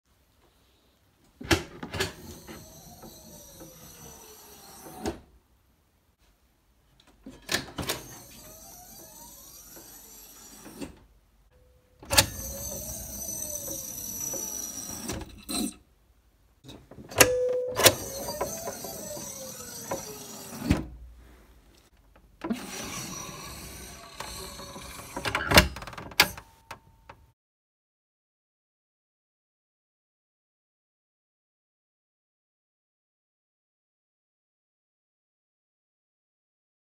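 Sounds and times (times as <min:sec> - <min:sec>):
monitor lift sliding: 0:01.6 - 0:05.3, 0:07.2 - 0:15.8, 0:16.7 - 0:21.0, 0:22.4 - 0:26.5.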